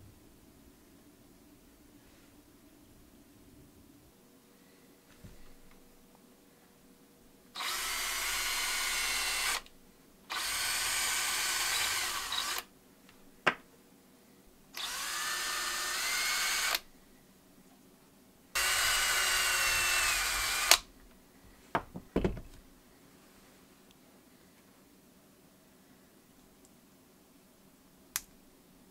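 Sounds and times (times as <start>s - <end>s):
cordless drill boring into wood: 7.6s - 9.7s, 10.3s - 12.7s, 14.8s - 16.8s, 18.6s - 20.9s.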